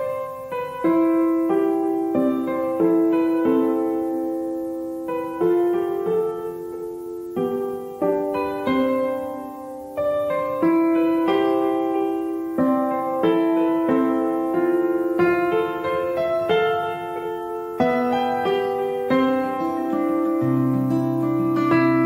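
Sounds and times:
gentle piano melody: 0.0 - 22.0.

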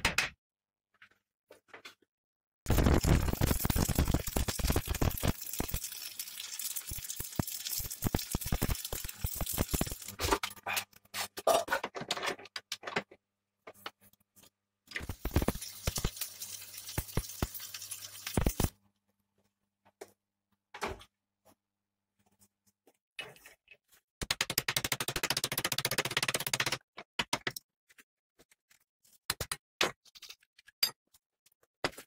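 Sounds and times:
arc welding crackle: 2.7 - 10.2, 15.0 - 18.7.

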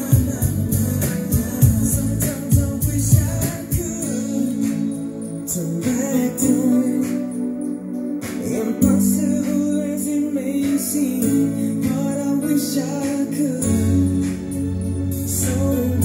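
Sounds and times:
bass line: 0.0 - 7.6, 13.6 - 16.0
song over loudspeakers: 0.0 - 16.0.

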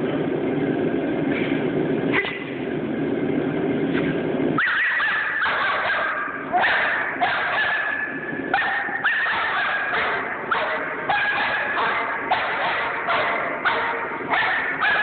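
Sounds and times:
dog yelping barks: 4.6 - 15.0.

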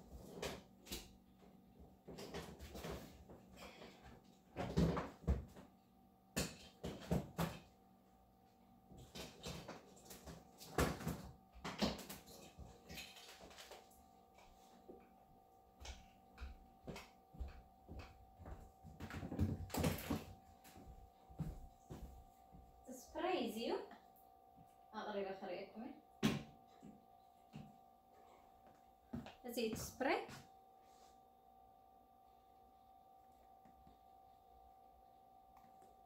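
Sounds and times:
faint steady hum: 0.0 - 36.0
household items knocking and rustling: 4.5 - 5.7, 6.4 - 7.7, 8.9 - 13.9, 15.8 - 22.3.

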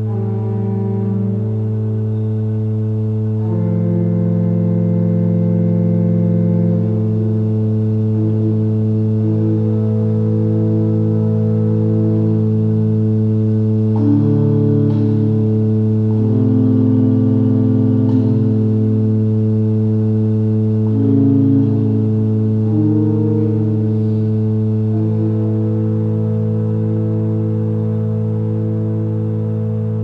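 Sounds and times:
organ-like ambient drone music: 0.0 - 30.0.

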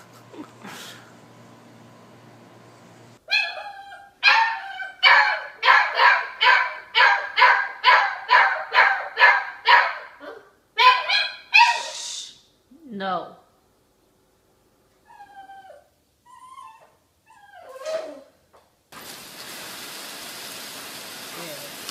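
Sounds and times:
puppy yipping: 3.3 - 12.0, 15.1 - 18.3.

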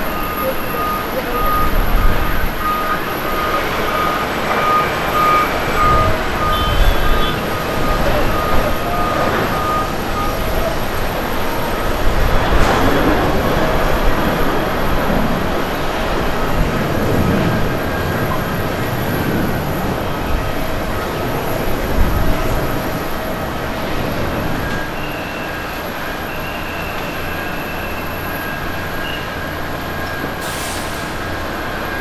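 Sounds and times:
repeated high beep: 0.0 - 10.6
jet engine roar: 0.0 - 32.0.

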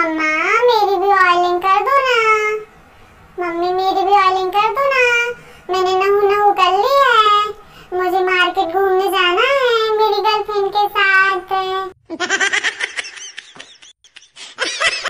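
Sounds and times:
giggling laughter: 12.1 - 15.0.

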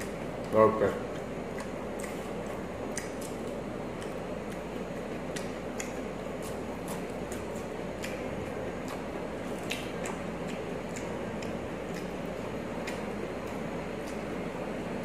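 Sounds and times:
person chewing and crunching: 0.0 - 15.0
steady background hiss: 0.0 - 15.0.

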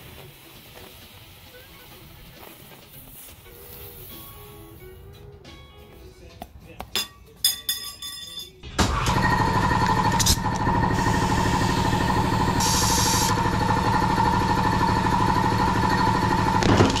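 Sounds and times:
air compressor running: 8.9 - 17.0.

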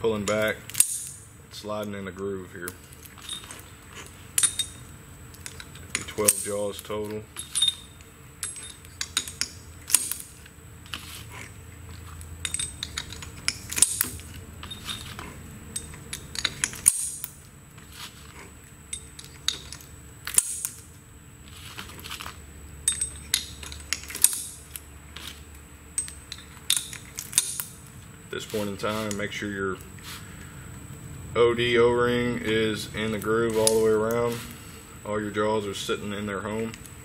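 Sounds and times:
metal jaws clinking: 2.9 - 3.7, 4.3 - 10.4, 11.4 - 17.4, 18.9 - 20.9, 22.8 - 25.3, 25.9 - 27.8.

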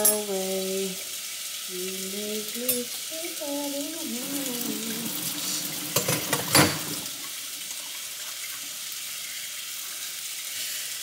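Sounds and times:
food sizzling in a pan: 0.0 - 11.0
kitchen utensils clinking: 5.8 - 7.1.

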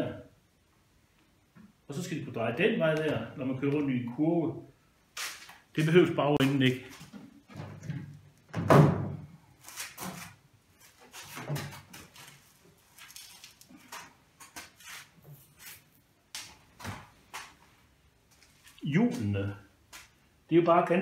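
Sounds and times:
knocks and thuds on frame: 8.5 - 9.2.

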